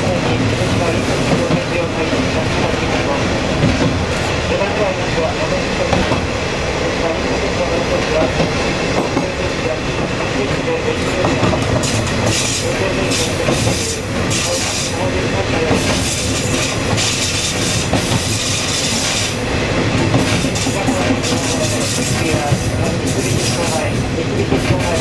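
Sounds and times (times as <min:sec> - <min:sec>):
rail-joint clatter: 0:00.0 - 0:06.4, 0:07.8 - 0:25.0.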